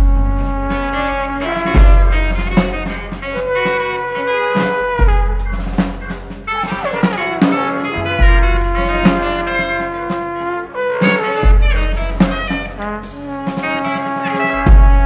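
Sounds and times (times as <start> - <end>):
drum kit: 0.0 - 15.0
plastic pipe trumpets: 0.0 - 15.0
saxophone: 0.0 - 15.0
deep low thuds: 1.8 - 3.6, 4.9 - 9.6, 14.6 - 15.0.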